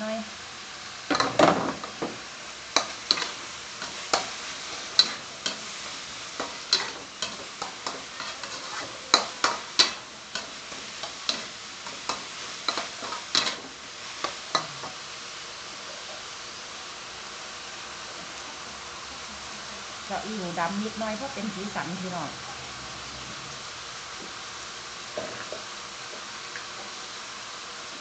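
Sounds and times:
frying sizzle: 0:00.0 - 0:28.0
metal spatula scraping wok: 0:02.7 - 0:15.0.

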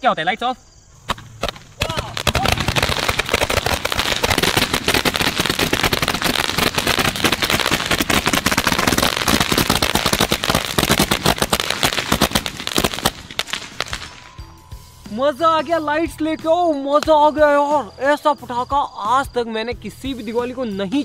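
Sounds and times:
firework rapid bangs and crackles: 0:01.1 - 0:14.3.

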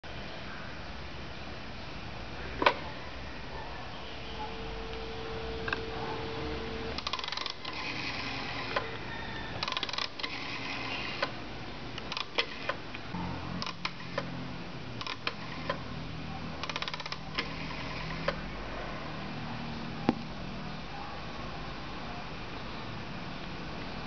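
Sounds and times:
telephone dial tone: 0:06.5 - 0:11.4, 0:16.6 - 0:18.4
rotary dial clicking back: 0:07.0 - 0:09.0, 0:09.6 - 0:11.4, 0:12.0 - 0:12.9, 0:13.6 - 0:14.3, 0:15.0 - 0:15.8, 0:16.6 - 0:18.4.

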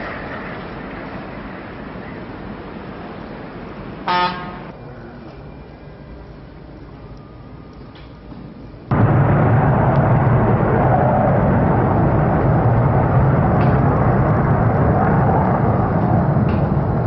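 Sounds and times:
jet engines roaring: 0:00.0 - 0:04.0, 0:08.8 - 0:17.0.

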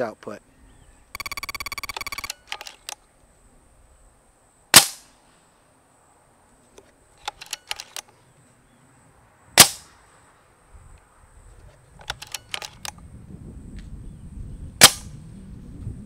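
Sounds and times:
quick small clicks: 0:01.2 - 0:03.0, 0:07.2 - 0:08.1, 0:12.0 - 0:13.0
air rifle shot crack: 0:04.7 - 0:05.0, 0:09.6 - 0:09.9, 0:14.8 - 0:15.1.

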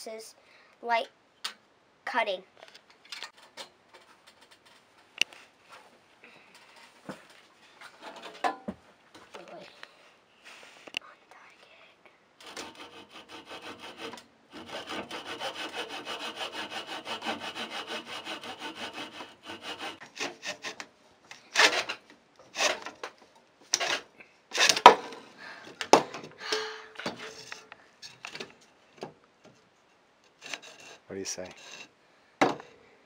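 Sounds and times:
hand saw cutting wood: 0:12.4 - 0:23.0, 0:23.7 - 0:25.2, 0:30.4 - 0:31.9.

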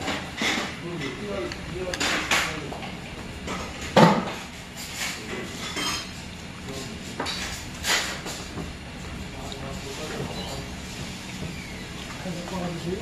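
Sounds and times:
spoon clinking on dishes: 0:05.6 - 0:06.2.

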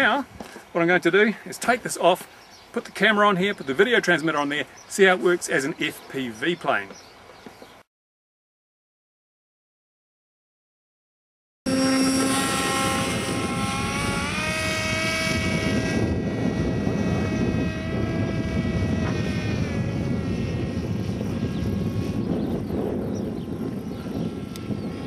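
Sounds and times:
model plane motor whining: 0:11.7 - 0:25.0
wind noise rumbling: 0:11.7 - 0:25.0.

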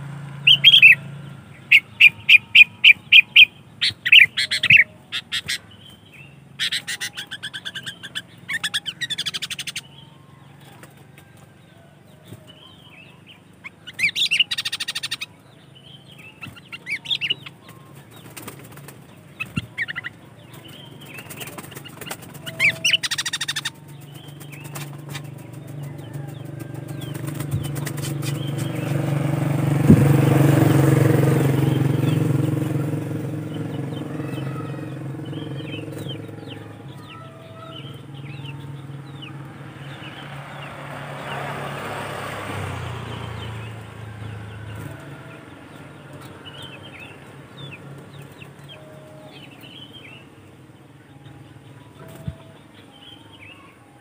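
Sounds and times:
motor vehicle passing: 0:00.0 - 0:54.0
bird calling in chattering bursts: 0:06.5 - 0:09.9, 0:13.5 - 0:15.3, 0:16.4 - 0:38.8.

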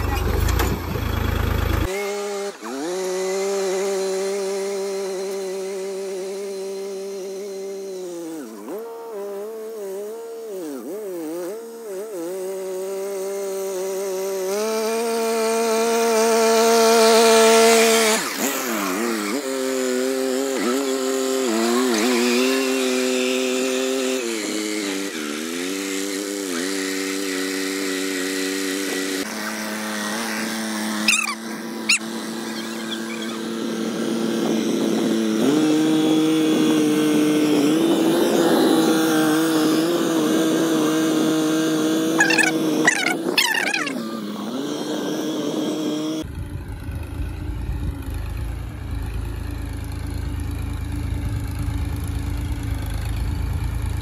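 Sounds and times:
tractor engine under load: 0:00.0 - 0:01.9.

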